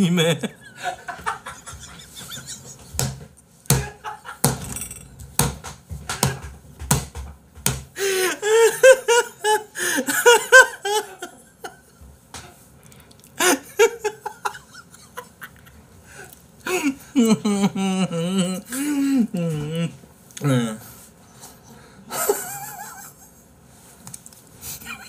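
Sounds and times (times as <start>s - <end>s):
man laughing hard: 0.0s - 2.9s, 8.0s - 11.8s, 13.4s - 15.6s, 16.7s - 19.9s, 22.1s - 23.3s.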